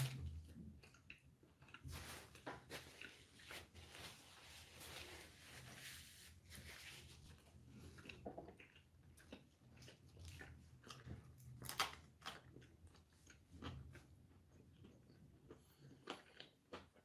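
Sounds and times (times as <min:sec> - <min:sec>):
faint chewing: 0:00.0 - 0:03.8, 0:07.3 - 0:17.0
paper napkin rustling: 0:01.9 - 0:07.3.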